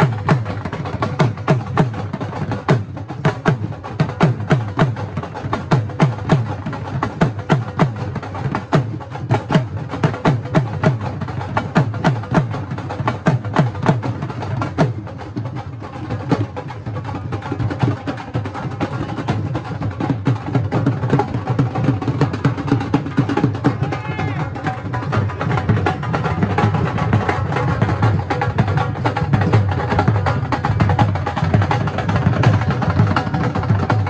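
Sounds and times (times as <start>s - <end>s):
dhol drums beaten with sticks: 0.0s - 34.0s.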